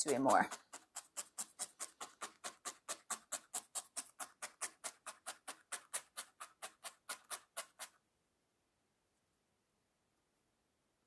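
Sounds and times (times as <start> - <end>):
felting needle stabbing into foam: 0.0 - 8.0.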